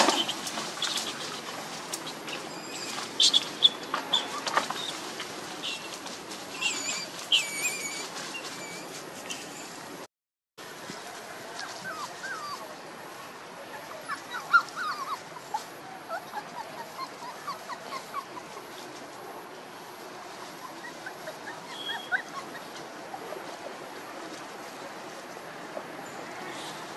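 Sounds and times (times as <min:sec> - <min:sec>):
puppies yipping and squeaking: 0:00.0 - 0:09.8, 0:11.6 - 0:12.7, 0:13.7 - 0:19.1, 0:20.3 - 0:25.1
steady outdoor hiss: 0:00.0 - 0:26.9.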